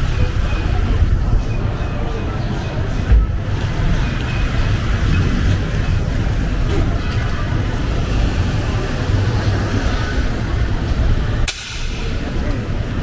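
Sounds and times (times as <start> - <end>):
low traffic rumble: 0.0 - 13.0
vehicle engines running: 0.0 - 13.0.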